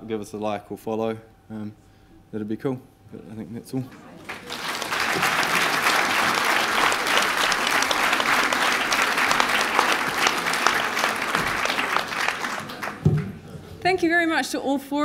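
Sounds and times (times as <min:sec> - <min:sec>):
audience applauding: 0:03.9 - 0:13.7.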